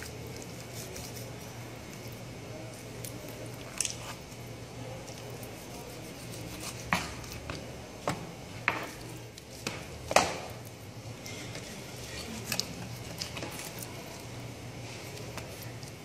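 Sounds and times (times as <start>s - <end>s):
meat slapping on cutting board: 6.6s - 10.7s.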